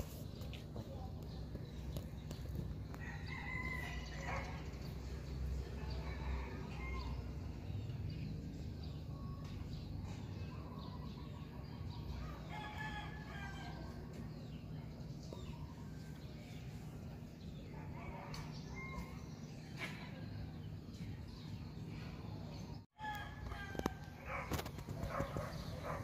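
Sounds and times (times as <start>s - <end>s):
rooster crowing: 3.0s - 4.7s, 23.0s - 24.2s.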